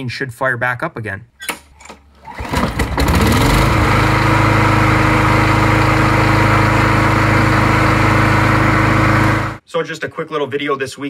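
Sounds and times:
lawn mower engine running: 2.1s - 9.6s.

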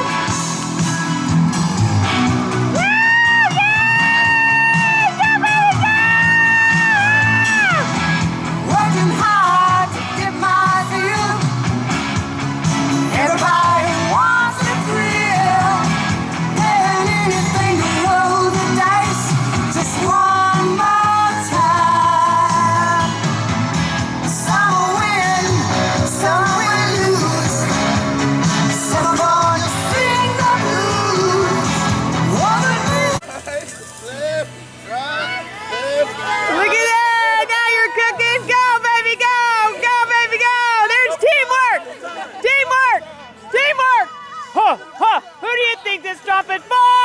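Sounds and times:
pop-rock backing music: 0.0s - 36.7s
woman singing into a microphone: 8.6s - 11.5s, 13.1s - 23.2s, 24.3s - 28.0s, 28.7s - 33.2s.

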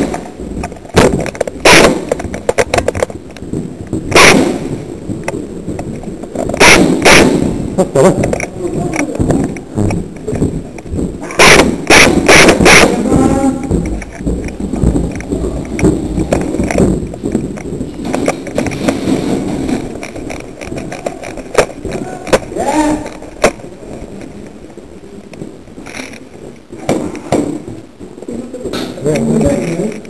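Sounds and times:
airsoft gunfire cracks: 1.6s - 2.2s, 4.1s - 4.8s, 6.6s - 7.6s, 11.4s - 13.0s
gear rustling against helmet camera: 8.1s - 26.7s.

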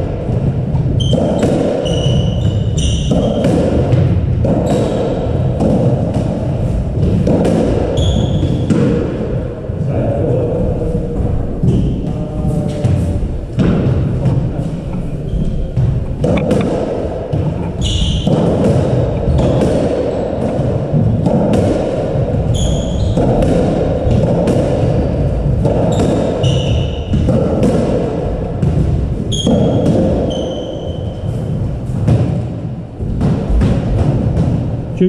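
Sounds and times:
squash ball striking rackets and walls: 0.0s - 35.0s
shoes squeaking on wooden floor: 0.9s - 3.4s, 8.0s - 8.7s, 17.3s - 20.5s, 22.5s - 23.4s, 24.9s - 27.3s, 29.2s - 32.0s.

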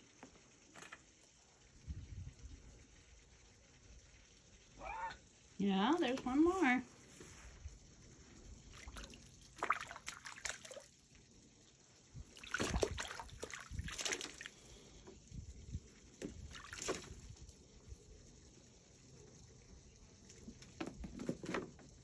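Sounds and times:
water sloshing and splashing: 8.6s - 11.2s, 12.1s - 15.1s, 16.2s - 17.6s.

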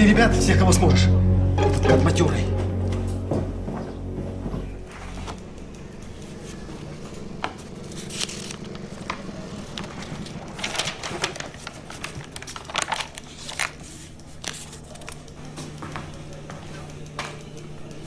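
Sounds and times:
paper pages rustling: 7.5s - 15.2s.

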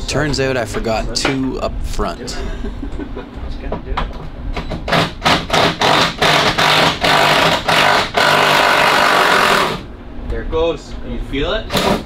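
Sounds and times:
impact wrench firing: 4.6s - 9.9s, 11.7s - 12.0s.

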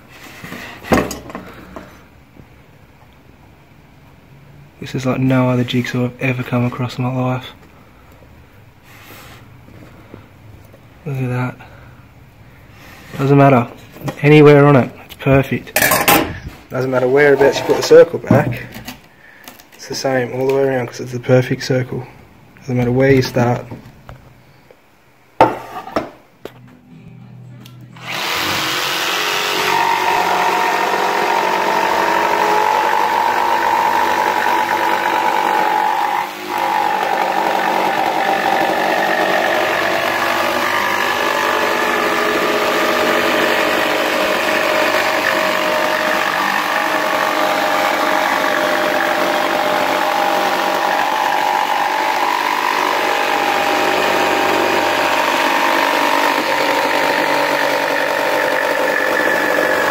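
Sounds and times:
jigsaw cutting wood: 28.0s - 59.9s.

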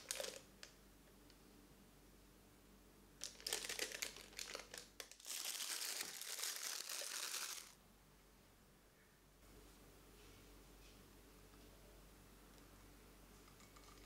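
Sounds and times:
piping bag crinkling: 0.0s - 0.6s, 3.2s - 7.8s.

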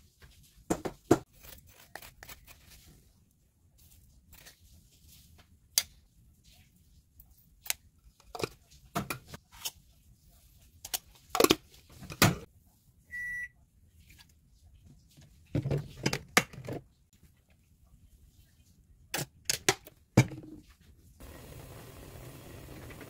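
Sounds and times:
short electronic beep: 13.1s - 13.5s.

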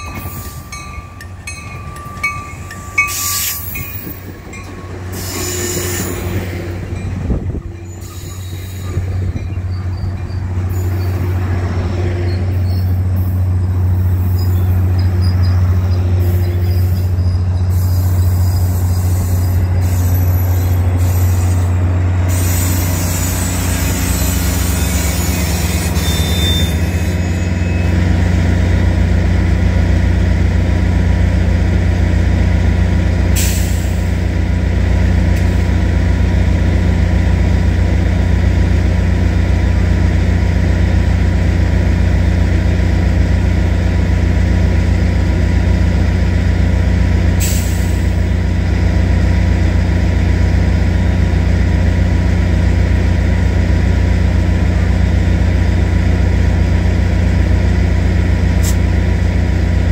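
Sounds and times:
high wheel squeal: 0.0s - 28.1s
train rumbling past: 0.0s - 59.9s.

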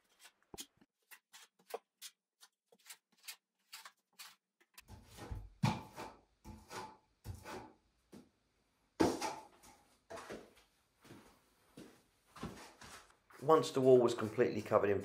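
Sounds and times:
trowel scraping wet plaster: 0.0s - 7.8s.

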